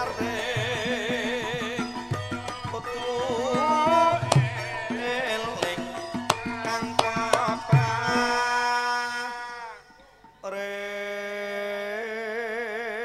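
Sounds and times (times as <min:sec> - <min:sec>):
hand drums: 0:00.0 - 0:10.0
sharp percussion strikes: 0:00.0 - 0:10.2
person singing wavering melody: 0:00.0 - 0:13.0.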